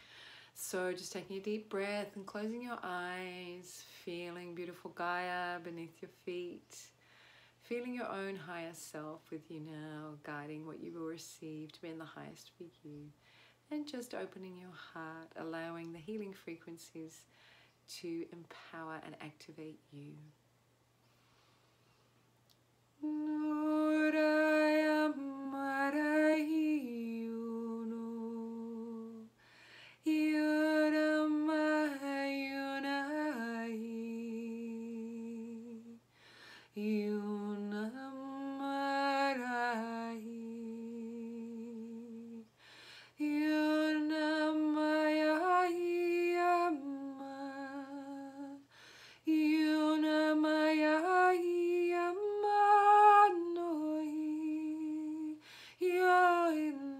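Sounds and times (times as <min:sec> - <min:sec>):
breaths: 0:00.0 - 0:00.6, 0:07.0 - 0:07.6, 0:13.2 - 0:13.7, 0:17.2 - 0:17.9, 0:29.4 - 0:30.0, 0:36.1 - 0:36.8, 0:42.5 - 0:43.2, 0:48.7 - 0:49.3, 0:55.4 - 0:55.8.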